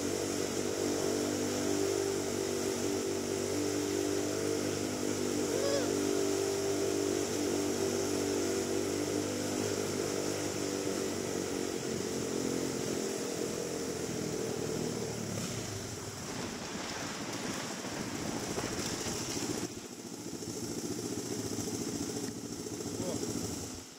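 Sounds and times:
motorcycle engine running: 0.0 - 23.9
steady hiss: 0.0 - 23.9.

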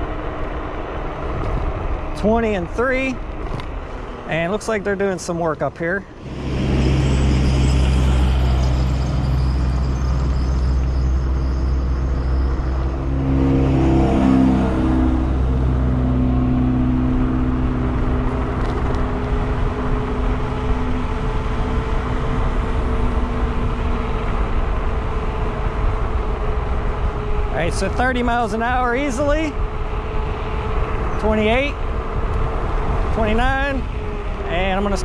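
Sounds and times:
wind buffeting microphone: 0.0 - 4.2, 13.8 - 35.0.

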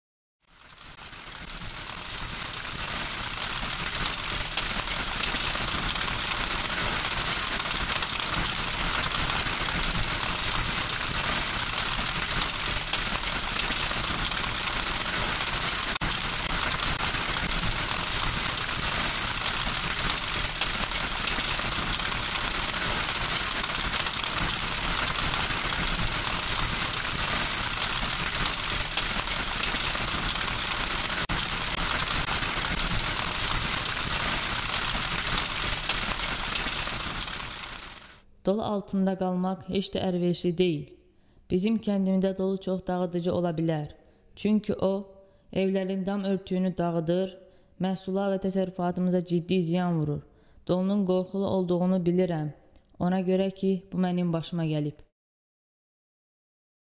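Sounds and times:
hail pelting hard ground: 0.5 - 38.2.

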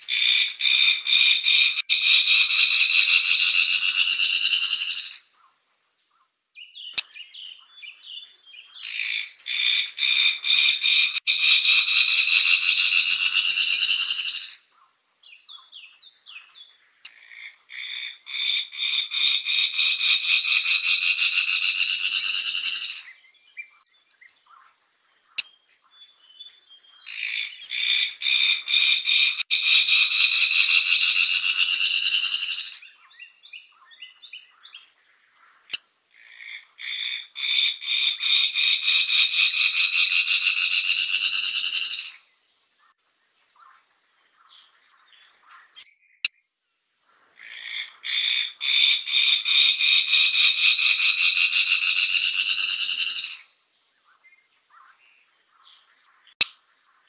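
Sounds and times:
bird calling with buzzing trill: 0.0 - 5.2, 9.0 - 14.6, 28.1 - 32.8, 36.9 - 42.2, 48.2 - 53.4.

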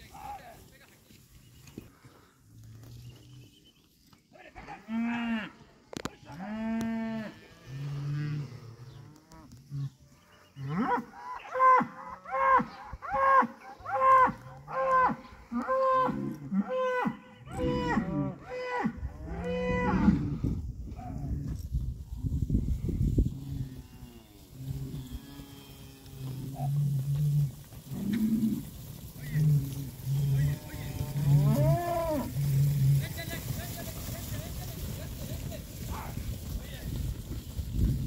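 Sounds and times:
cattle mooing: 24.2 - 33.4.

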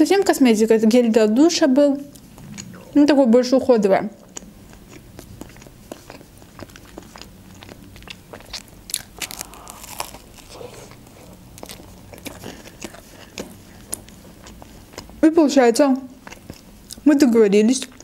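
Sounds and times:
wet chewing: 4.2 - 15.2, 16.0 - 17.1, 17.7 - 18.0
crunching bite into toast: 7.6 - 13.0.

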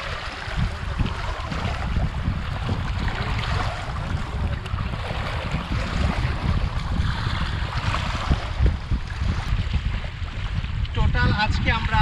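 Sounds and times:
waves lapping on pebbly shore: 0.0 - 10.6
wind buffeting microphone: 0.0 - 12.0.

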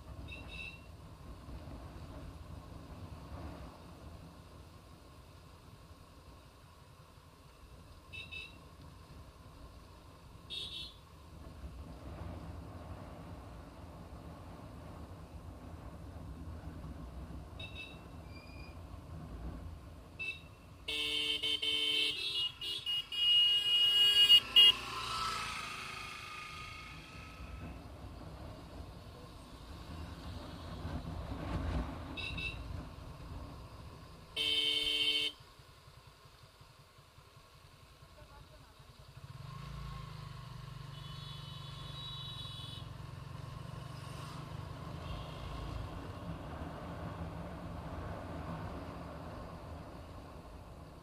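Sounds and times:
motorcycle rumble: 0.0 - 51.0
road and wind noise: 0.0 - 51.0
vehicle horn honking: 10.5 - 11.0, 20.2 - 24.8, 34.4 - 35.4, 40.9 - 42.9, 45.0 - 45.7.

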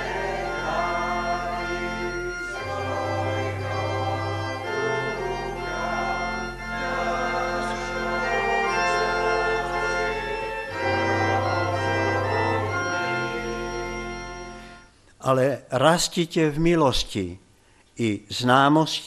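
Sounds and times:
church organ playing a hymn: 0.0 - 15.0.

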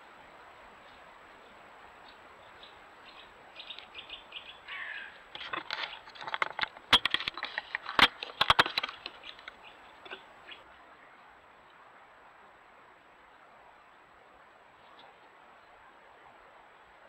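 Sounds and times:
close-up rustling: 5.1 - 10.8
camera handling clicks and knocks: 5.4 - 10.2.

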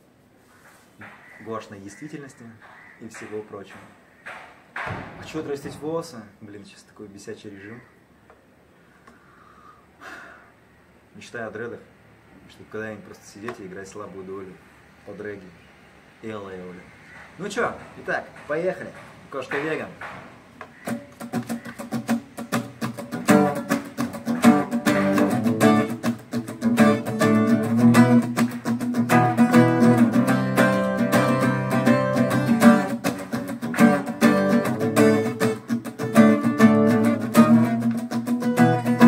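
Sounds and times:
acoustic guitar strumming chords: 20.9 - 39.0.

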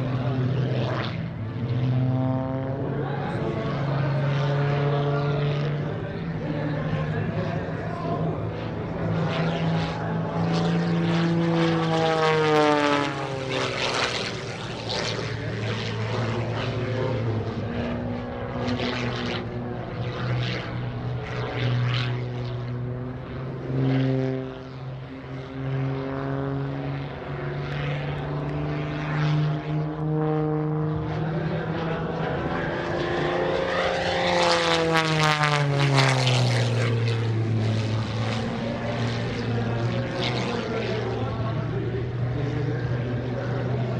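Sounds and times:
propeller plane engine: 0.0 - 43.9.

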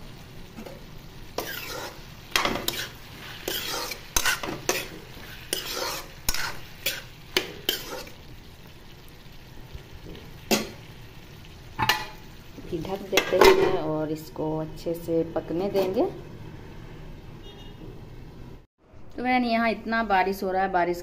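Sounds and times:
vegetables sizzling: 0.0 - 17.4
utensil scraping metal pan: 1.4 - 8.2.

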